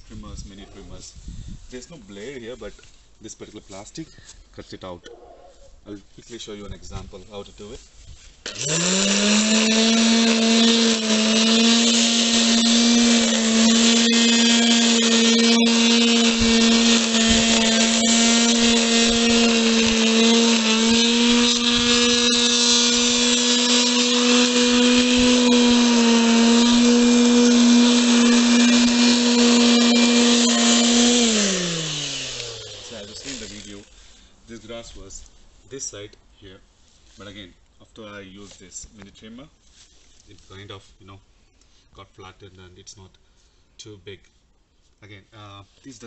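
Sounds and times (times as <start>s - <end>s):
electric grass trimmer whining: 8.4s - 33.9s.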